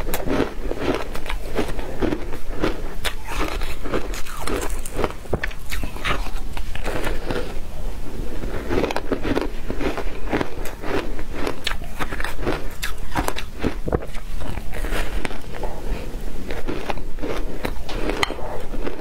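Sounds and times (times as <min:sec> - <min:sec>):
crunching bites of frozen ice: 0:00.1 - 0:07.5.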